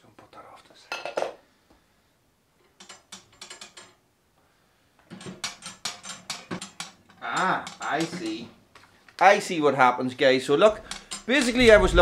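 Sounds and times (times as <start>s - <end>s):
metal stove door rattling: 5.1s - 8.4s, 10.7s - 12.0s.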